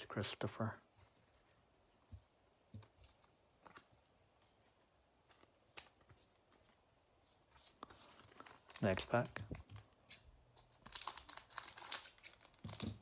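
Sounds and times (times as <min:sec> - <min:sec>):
trading cards tapping and rustling: 0:07.6 - 0:13.0.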